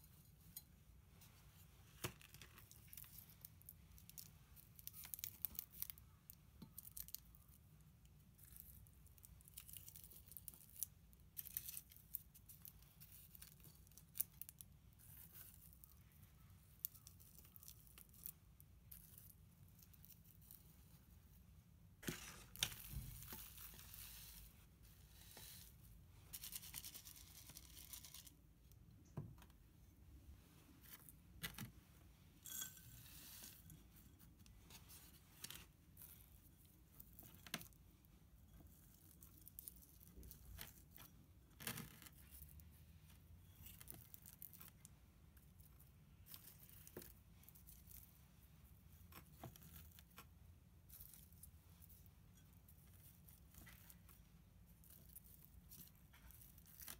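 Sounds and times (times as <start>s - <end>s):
light clicks and crinkles: 0.0s - 21.4s, 30.4s - 56.9s
potting mix rustling and scraping: 22.0s - 28.4s, 30.4s - 37.7s.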